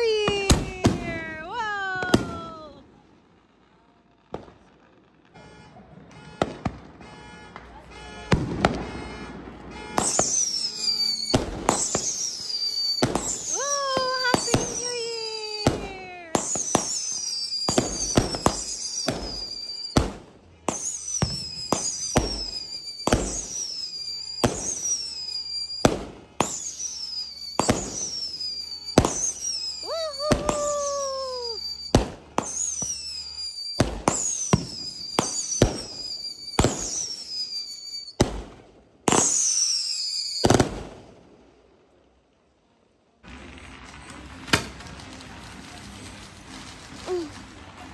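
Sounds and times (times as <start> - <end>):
firework cracks: 6.1 - 41.5, 43.2 - 47.9
high falling whistle: 10.0 - 15.7, 16.4 - 20.0, 20.8 - 25.8, 26.4 - 38.2, 39.2 - 40.5
lower longer falling whistle: 10.0 - 15.7, 16.4 - 20.0, 20.8 - 25.8, 26.5 - 38.2, 39.2 - 40.5.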